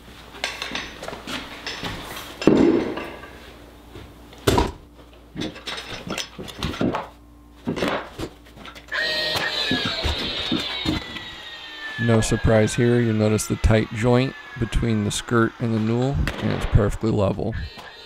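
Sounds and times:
cordless nailer motor whine: 8.9s - 16.7s.

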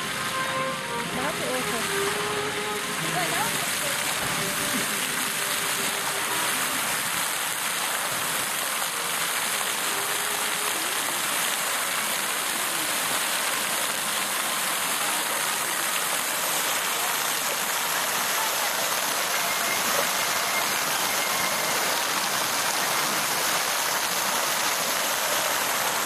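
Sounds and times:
fountain water pattering on stone: 0.0s - 26.0s.

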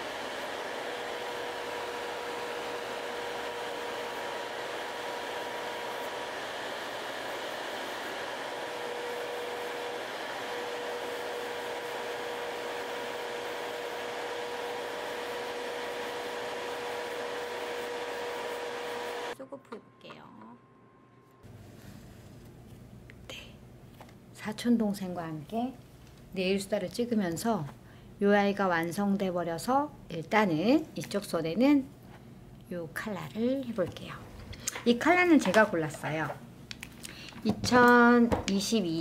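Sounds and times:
dust collector fan rushing: 0.0s - 19.4s
electric nail drill whining: 0.0s - 19.4s.

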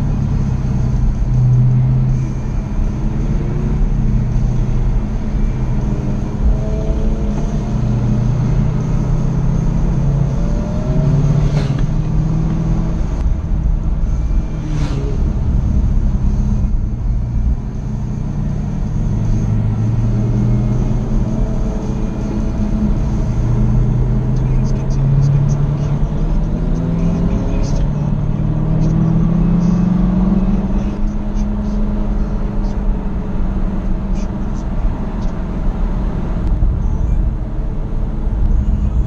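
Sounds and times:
car engine revving: 0.0s - 39.0s.

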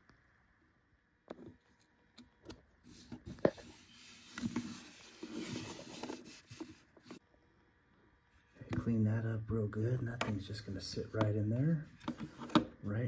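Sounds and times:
foam gasket rubbing and rustling: 2.8s - 7.2s.

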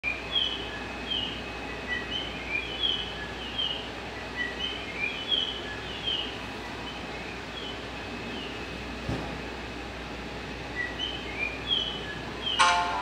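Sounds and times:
high bird chirps: 0.0s - 8.6s, 10.7s - 13.0s
low background hum: 0.0s - 13.0s.

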